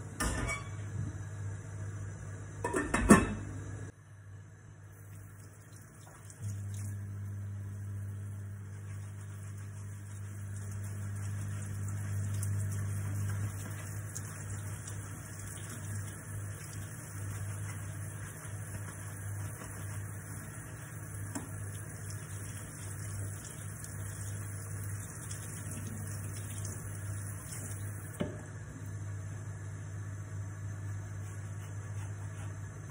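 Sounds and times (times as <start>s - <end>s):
tap water running into sink: 5.2s - 7.0s, 9.8s - 28.3s.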